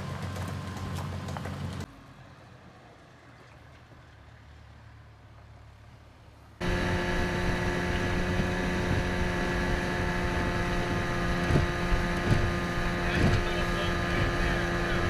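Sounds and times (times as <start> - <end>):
wind: 0.0 - 15.0
outboard motor running: 6.6 - 15.0
water noise: 6.6 - 15.0.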